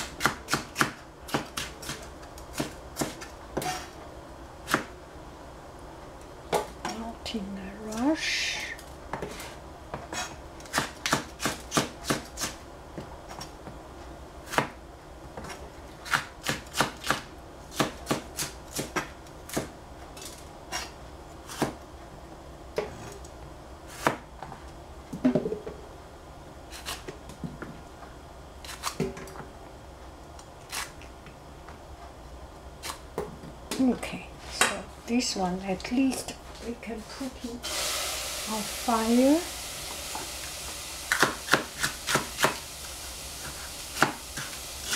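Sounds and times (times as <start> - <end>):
knife chopping on cutting board: 0.0 - 3.8, 10.1 - 12.6, 14.5 - 14.8, 15.4 - 19.7, 21.5 - 21.8, 23.9 - 24.2, 41.1 - 42.6, 43.4 - 44.9.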